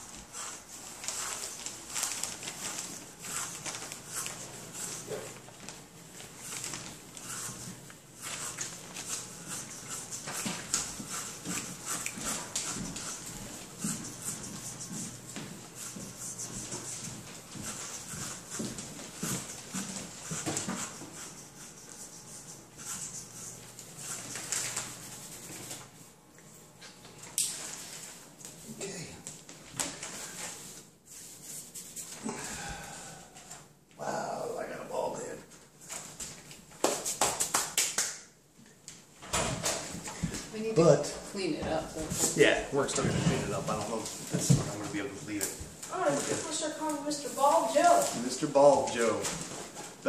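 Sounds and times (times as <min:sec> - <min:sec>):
clippers rustling through hair: 0:00.2 - 0:25.9.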